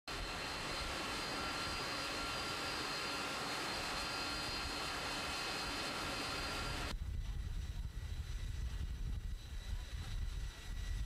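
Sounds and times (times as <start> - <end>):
jet engines rushing and whining: 0.1 - 11.0.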